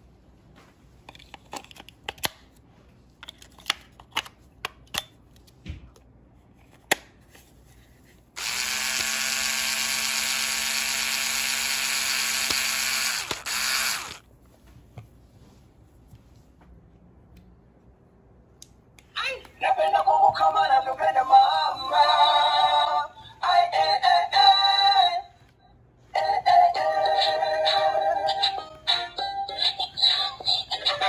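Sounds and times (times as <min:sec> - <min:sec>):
electric screwdriver motor whine: 0:08.4 - 0:14.2.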